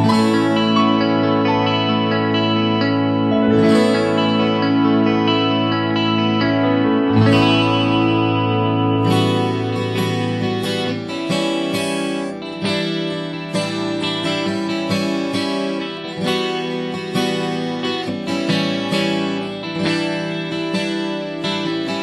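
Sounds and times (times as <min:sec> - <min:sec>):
strummed acoustic guitar music: 0:00.0 - 0:22.0.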